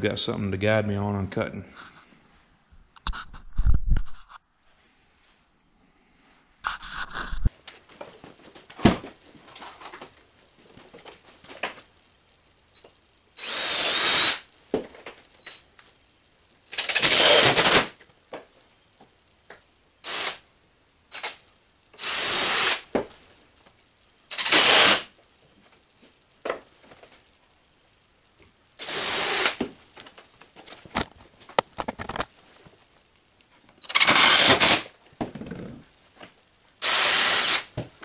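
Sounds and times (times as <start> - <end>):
cordless drill driving screws: 13.4 - 14.4, 16.7 - 17.9, 20.0 - 20.4, 22.0 - 22.8, 24.3 - 25.1, 28.8 - 29.6, 33.8 - 34.8, 36.8 - 37.7.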